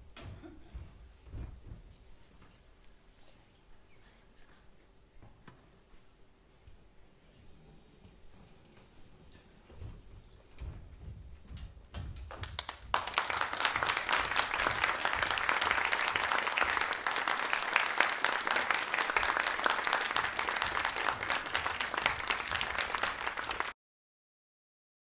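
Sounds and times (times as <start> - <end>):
audience applauding: 12.4 - 23.8.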